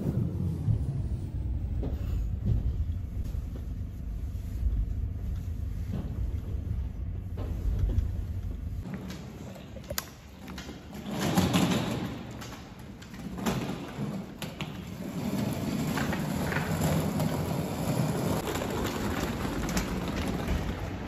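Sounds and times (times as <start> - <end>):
suitcase wheels rumbling on concrete: 4.6 - 21.0.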